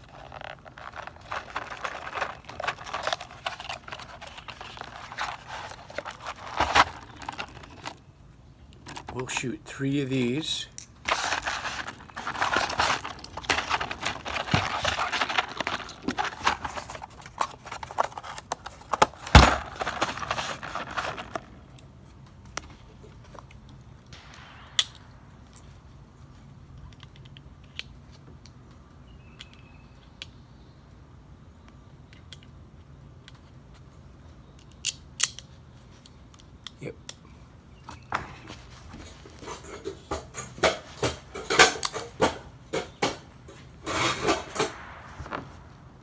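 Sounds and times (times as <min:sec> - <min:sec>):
metal cartridges rattling and clinking: 0:00.0 - 0:21.9, 0:39.0 - 0:45.6.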